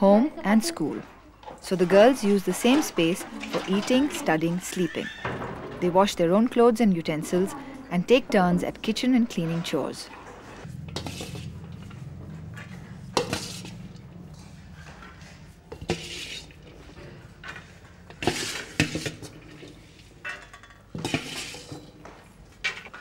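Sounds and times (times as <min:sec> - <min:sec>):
low hum: 0:08.6 - 0:15.9
steel dishes clinking and scraping: 0:13.1 - 0:14.0, 0:15.7 - 0:23.0.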